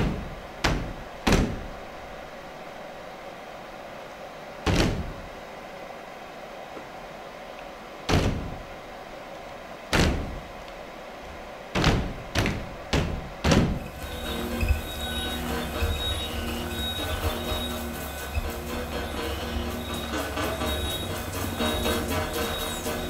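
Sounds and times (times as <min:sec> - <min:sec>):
electronic drones and tones: 0:13.8 - 0:23.0.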